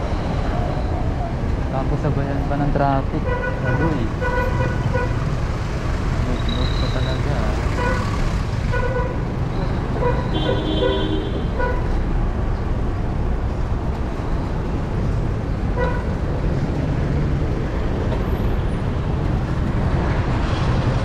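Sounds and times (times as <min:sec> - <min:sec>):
road traffic rushing: 0:00.0 - 0:21.0
vehicle horn beep: 0:10.0 - 0:11.8.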